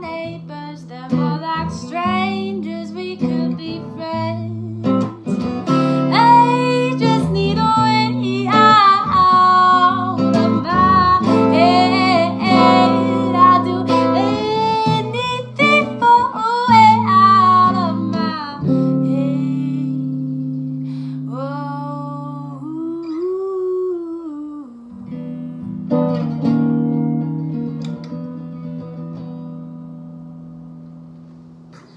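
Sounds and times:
woman singing: 0.0 - 25.2
electric guitar chords: 3.2 - 22.4.

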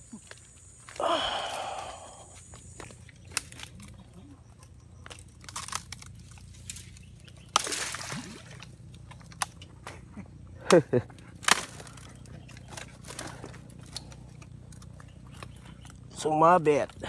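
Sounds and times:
brush crackling underfoot: 0.0 - 17.0
twig snaps: 2.5 - 4.1, 5.0 - 10.0, 11.4 - 16.0.

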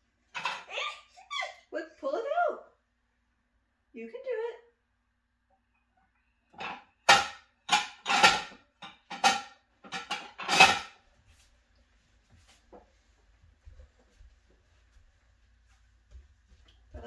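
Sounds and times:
dishes clinking and clattering: 0.3 - 0.7, 6.5 - 11.0.

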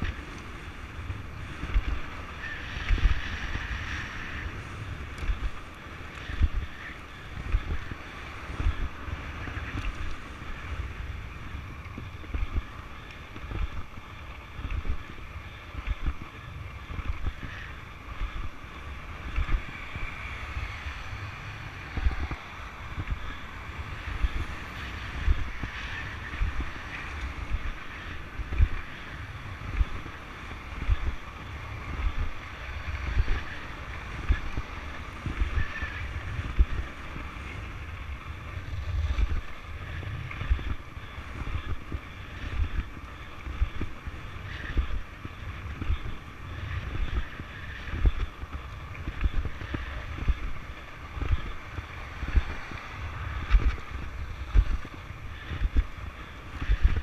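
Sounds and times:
longboard wheels rolling on asphalt: 0.0 - 57.0
wind buffeting microphone: 0.0 - 57.0.

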